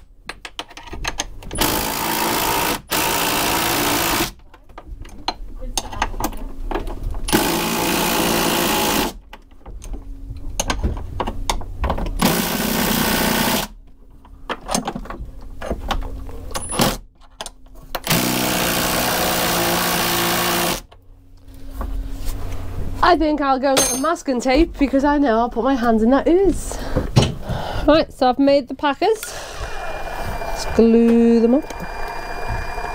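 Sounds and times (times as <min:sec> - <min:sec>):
cordless drill spinning: 0:29.2 - 0:32.9.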